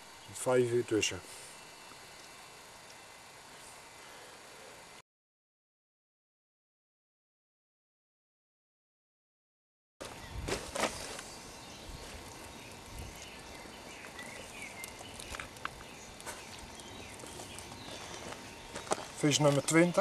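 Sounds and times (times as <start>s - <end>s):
sharp clicks and rustles: 14.8s - 19.8s.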